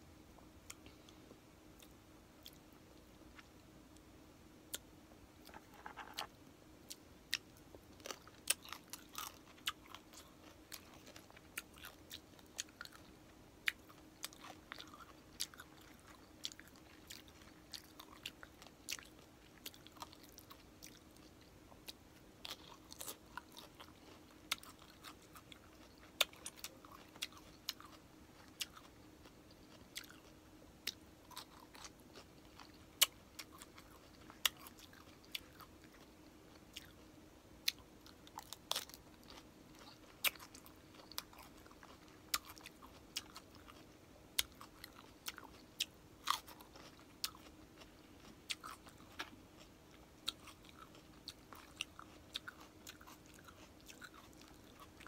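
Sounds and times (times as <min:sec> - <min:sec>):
crunchy chewing and biting: 0:05.4 - 0:55.0.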